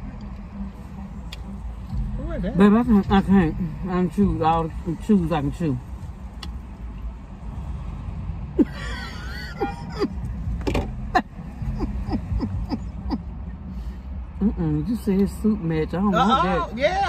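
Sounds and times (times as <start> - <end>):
car engine idling: 0.0 - 17.0
women laughing: 8.6 - 10.2, 11.0 - 13.3.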